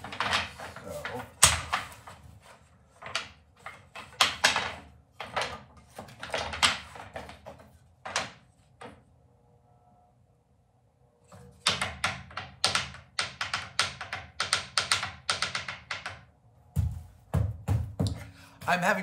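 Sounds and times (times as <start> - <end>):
wooden boards knocking together: 0.0 - 9.0, 11.4 - 18.3.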